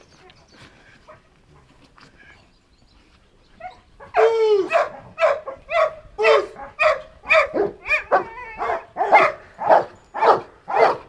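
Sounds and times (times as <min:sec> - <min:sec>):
large dog barking aggressively: 0:03.6 - 0:11.0.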